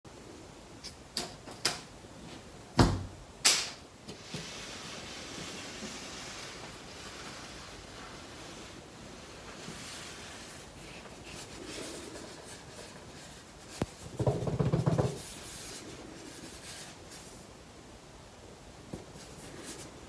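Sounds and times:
box scraping across wooden floor: 4.2s - 13.4s.

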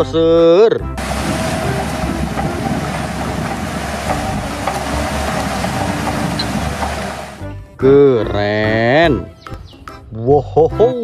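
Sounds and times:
steel tracks clattering: 1.0s - 7.4s
bulldozer diesel engine rumbling: 1.0s - 7.8s.

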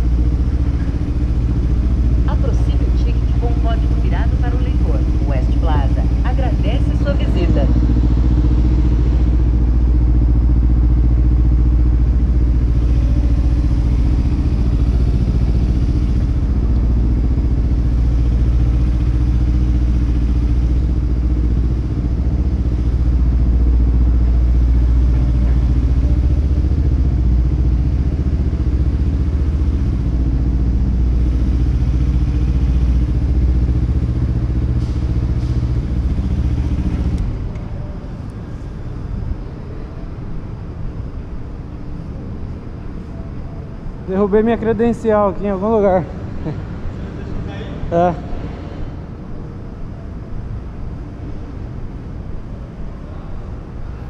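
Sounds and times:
motorcycle engine at low revs: 0.0s - 39.7s.

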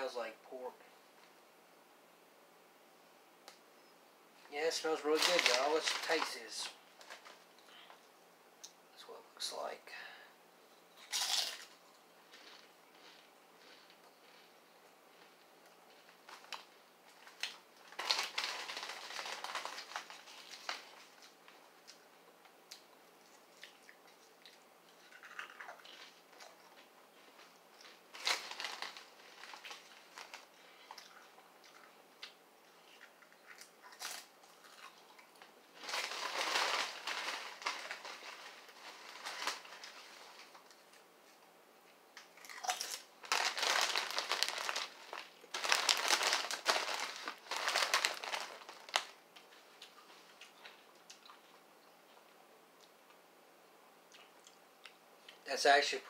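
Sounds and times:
foil chip bag crinkling: 4.6s - 7.9s, 11.0s - 14.5s, 15.1s - 22.0s, 25.0s - 31.4s, 32.8s - 41.0s, 42.4s - 51.5s
chewing potato chips: 11.0s - 22.0s, 22.6s - 41.0s, 42.2s - 53.2s.

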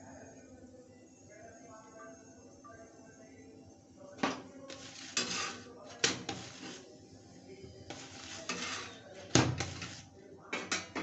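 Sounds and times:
spatula clanking on iron griddle: 4.7s - 6.8s, 7.9s - 10.0s, 10.6s - 11.0s
spatula scraping on griddle: 4.7s - 7.0s, 7.8s - 10.1s.

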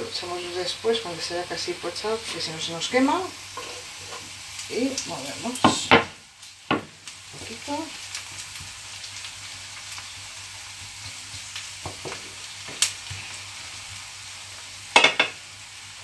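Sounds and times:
onion and garlic sizzling in oil: 0.0s - 16.0s
spatula scraping and knocking pan: 3.5s - 4.4s.

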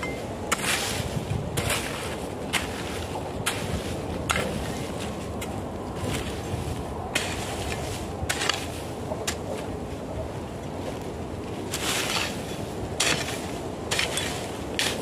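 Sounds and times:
hoe chopping into hard soil: 13.0s - 15.0s.

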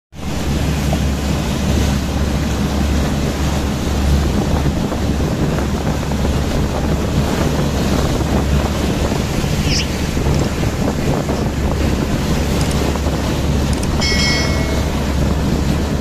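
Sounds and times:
water rushing past boat: 0.1s - 16.0s
wind buffeting microphone: 0.2s - 16.0s.

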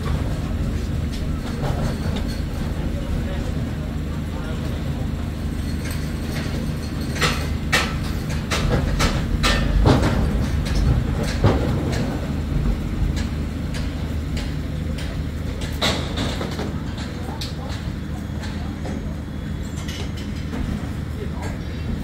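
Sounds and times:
metallic clanks and bangs: 5.7s - 12.3s.

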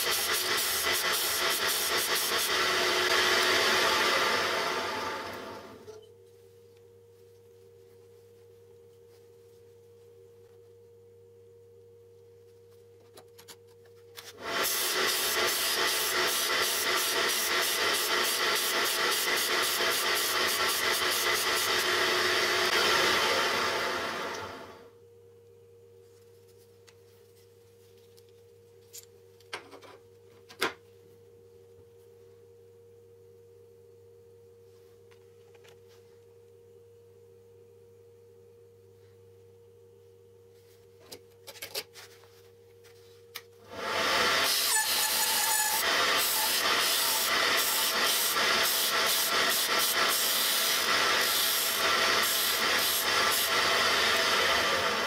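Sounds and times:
disc sander grinding drill bit: 14.4s - 24.0s, 43.8s - 55.0s.

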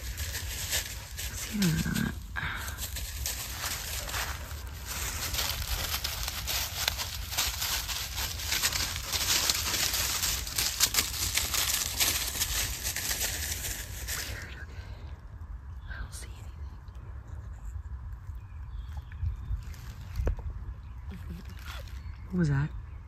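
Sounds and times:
footsteps through dry leaves: 0.0s - 14.5s, 19.6s - 20.4s
low rumble: 0.0s - 23.0s.

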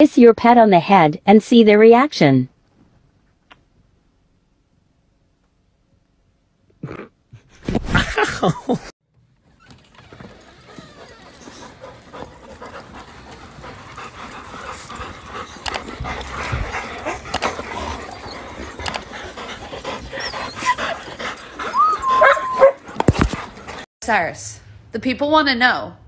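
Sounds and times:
dog whining: 9.6s - 23.8s
dogs panting: 9.8s - 23.9s.

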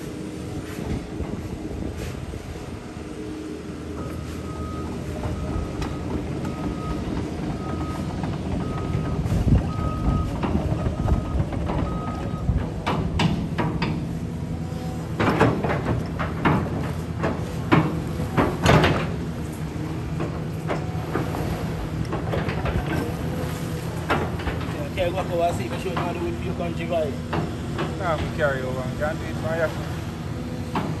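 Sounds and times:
sharp knocks and clatters: 5.2s - 14.2s, 15.1s - 26.6s, 27.2s - 28.9s.

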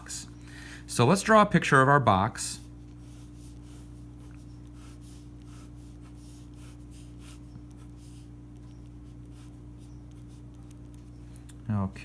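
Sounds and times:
steady low hum: 0.0s - 12.0s
ballpoint pen scratching on paper: 2.9s - 11.2s.

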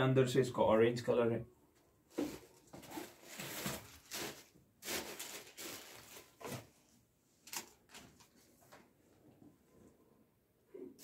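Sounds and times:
tissue paper rustling: 2.1s - 7.7s.

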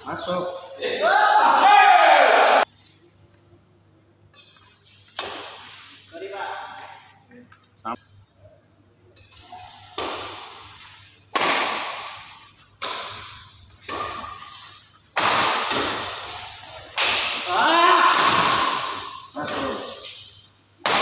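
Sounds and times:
badminton rackets hitting shuttlecock: 4.3s - 6.6s, 9.2s - 21.0s.

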